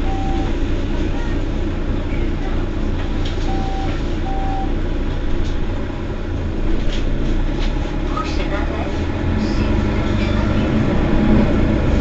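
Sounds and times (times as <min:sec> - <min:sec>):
short beep: 0:00.0 - 0:00.6, 0:03.5 - 0:04.7
bus engine idling: 0:00.0 - 0:12.0.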